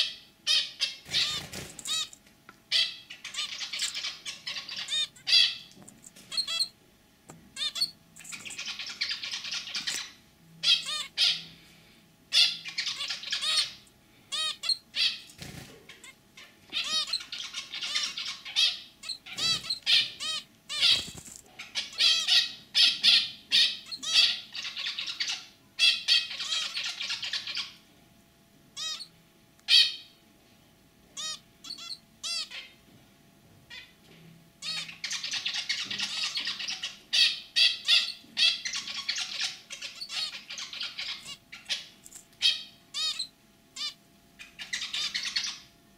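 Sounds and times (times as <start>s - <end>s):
finch song: 7.5s - 27.8s, 28.8s - 30.2s, 31.2s - 32.7s, 34.6s - 45.7s.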